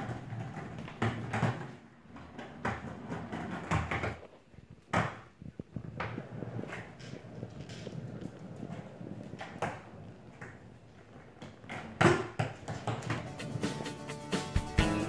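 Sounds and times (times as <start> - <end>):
skateboard wheels rumbling on wood: 0.0 - 13.9
skateboard knocking on wood: 11.4 - 13.5.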